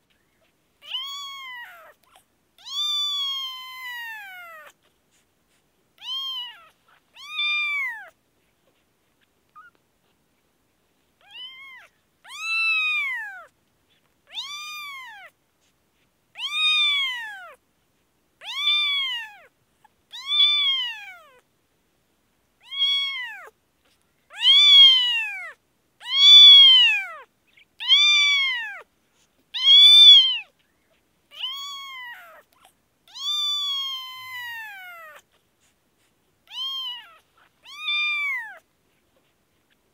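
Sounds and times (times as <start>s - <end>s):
kitten meowing: 0.8s - 4.8s, 6.0s - 8.2s, 11.2s - 13.5s, 14.3s - 15.4s, 16.4s - 17.6s, 18.4s - 19.5s, 20.1s - 21.4s, 22.6s - 23.5s, 24.3s - 28.9s, 29.6s - 30.6s, 31.3s - 35.3s, 36.4s - 38.6s.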